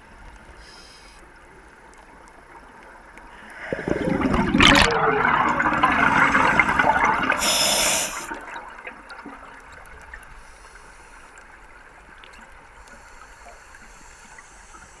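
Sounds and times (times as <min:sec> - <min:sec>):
faint underwater hiss: 0:00.1 - 0:01.8, 0:03.0 - 0:08.7, 0:10.1 - 0:15.0
diver's bubbles gurgling: 0:03.6 - 0:09.8.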